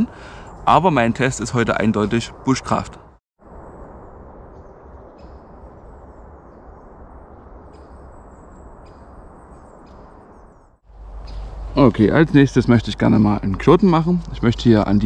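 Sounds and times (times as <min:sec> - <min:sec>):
forest rustle: 0:03.5 - 0:13.0
faint bird chirps: 0:03.6 - 0:11.9.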